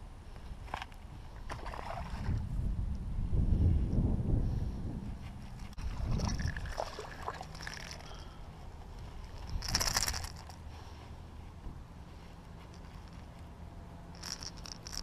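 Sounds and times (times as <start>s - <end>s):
wind buffeting microphone: 1.1s - 7.3s, 9.0s - 10.3s
fish splashing in water: 5.8s - 8.0s.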